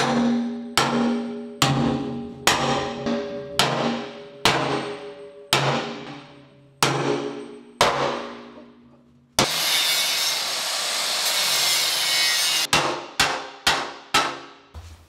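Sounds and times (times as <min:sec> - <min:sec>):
sledgehammer ringing on steel: 0:00.0 - 0:09.6.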